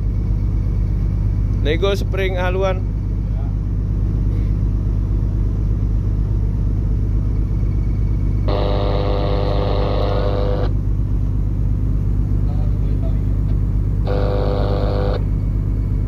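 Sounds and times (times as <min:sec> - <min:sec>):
ship machinery drone: 0:00.0 - 0:16.0
steady pitched tone: 0:08.5 - 0:10.8, 0:14.0 - 0:15.4.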